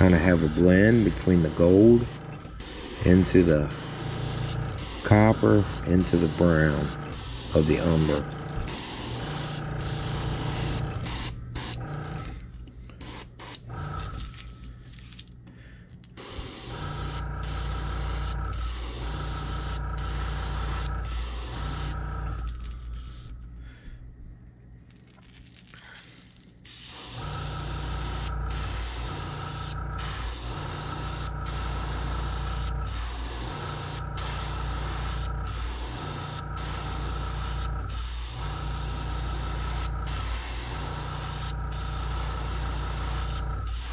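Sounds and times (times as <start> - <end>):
airbrush hissing: 0.0 - 11.8, 16.2 - 22.0, 26.7 - 43.9
air compressor humming: 0.0 - 24.3, 25.1 - 43.9.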